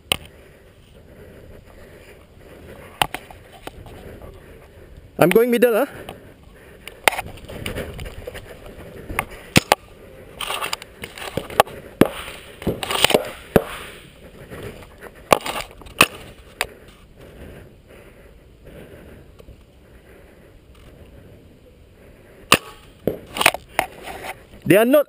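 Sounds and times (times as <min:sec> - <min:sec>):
paintball markers firing: 0:09.5 - 0:09.8, 0:10.5 - 0:13.9.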